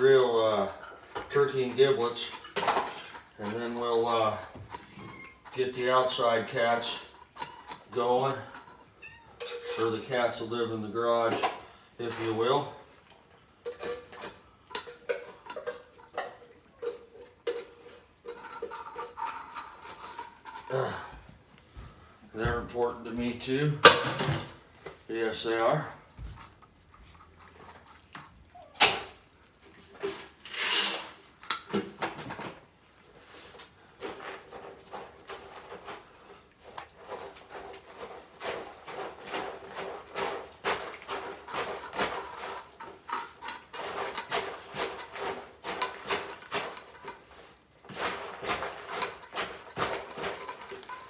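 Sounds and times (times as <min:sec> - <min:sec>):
cats chewing wet food: 0:11.7 - 0:22.3, 0:32.6 - 0:51.0.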